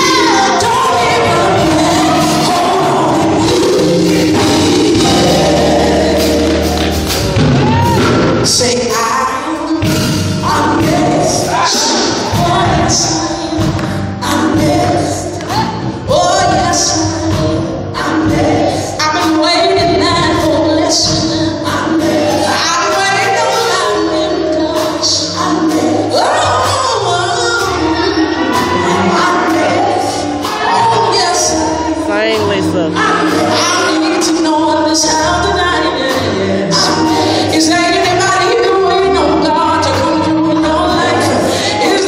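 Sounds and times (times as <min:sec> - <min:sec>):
keyboard: 0:00.0 - 0:42.0
women singing gospel: 0:00.0 - 0:42.0
steady beat: 0:28.4 - 0:33.7.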